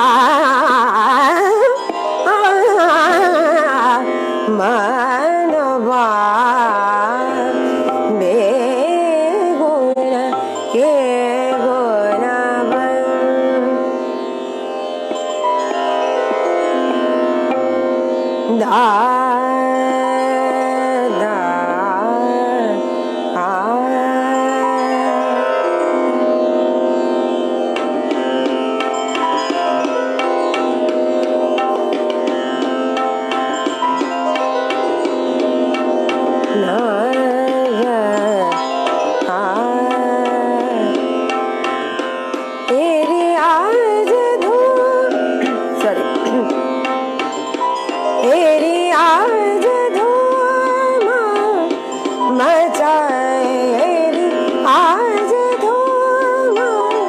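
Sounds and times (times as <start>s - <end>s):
woman singing: 0.0s - 14.0s, 18.4s - 26.7s, 36.4s - 57.0s.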